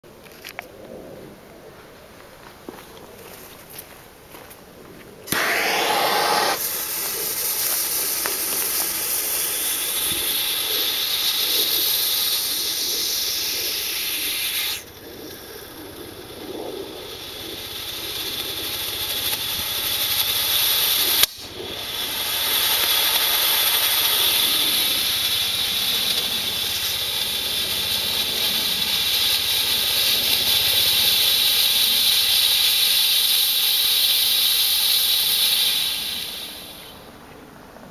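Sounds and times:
smoke bomb hissing: 5.3 - 37.1.

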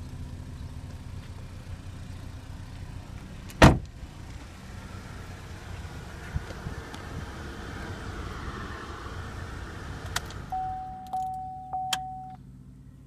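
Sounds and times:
dashboard warning chime: 10.5 - 12.4.

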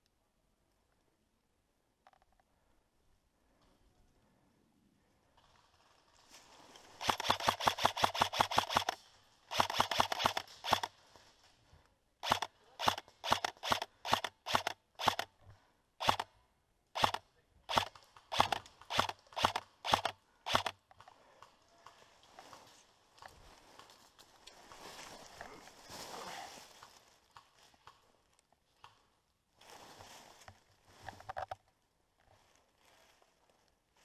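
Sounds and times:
airsoft rifle shots: 7.0 - 10.9, 12.2 - 15.3, 16.0 - 16.3, 17.0 - 20.8.

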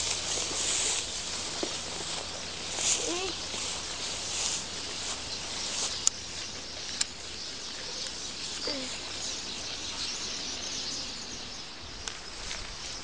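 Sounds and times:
dry grass rustling underfoot: 0.0 - 9.6
birds chirping: 0.0 - 12.3.

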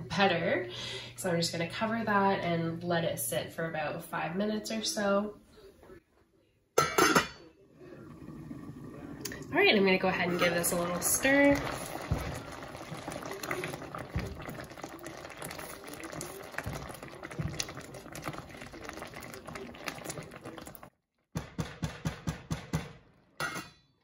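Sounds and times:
sauce bubbling: 7.8 - 20.9
spatula stirring sauce: 10.3 - 20.9.

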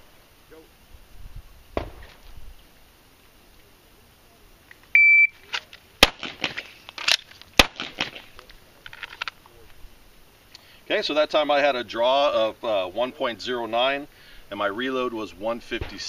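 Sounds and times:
shot timer beep: 5.0 - 5.4
magazine reload clicks: 5.4 - 9.5
pistol shots: 6.0 - 8.4.

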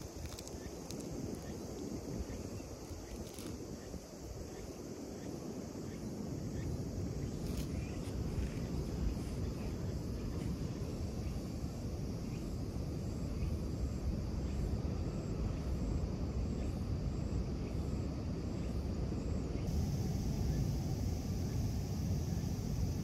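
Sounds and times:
low outdoor rumble: 19.7 - 23.0.

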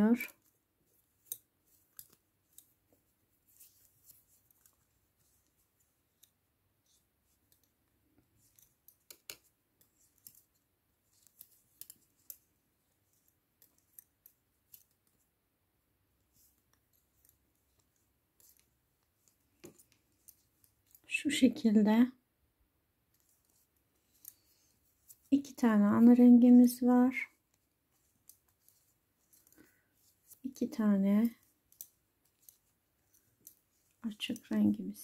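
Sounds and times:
knitting needles clicking: 0.0 - 15.4, 16.1 - 21.1, 23.0 - 26.0, 26.6 - 35.0.

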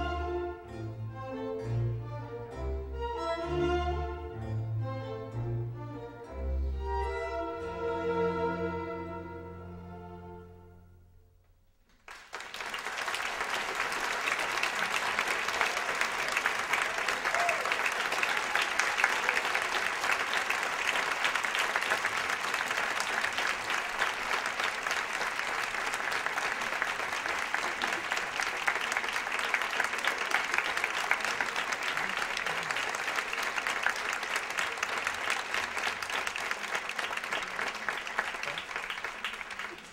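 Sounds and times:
audience applauding: 11.9 - 39.9.

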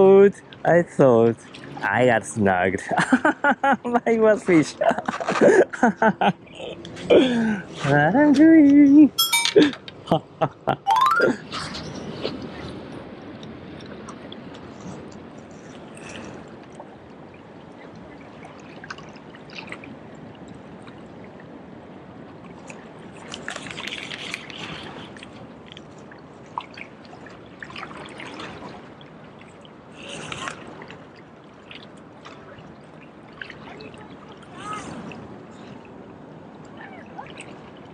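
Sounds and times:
small waves lapping against rocks: 12.4 - 37.9.

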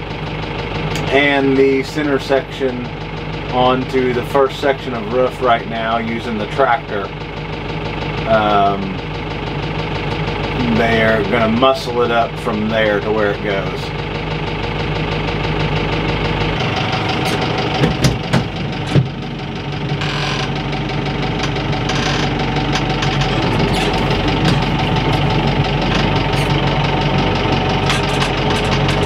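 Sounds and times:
tractor engine idling: 0.0 - 29.0
sharp clunks: 17.2 - 19.2.

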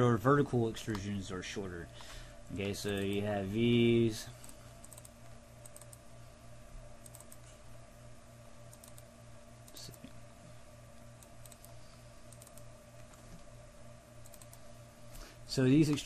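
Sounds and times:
low electrical hum: 0.0 - 16.0
computer mouse clicks: 4.4 - 6.0, 7.0 - 7.5, 8.7 - 9.1, 11.2 - 13.4, 14.2 - 14.6.

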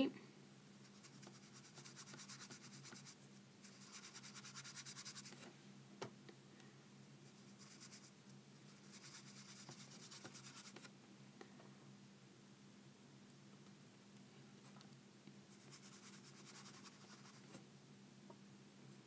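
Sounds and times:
paintbrush scratching on paper: 0.8 - 5.4, 7.3 - 10.9, 15.5 - 17.5.

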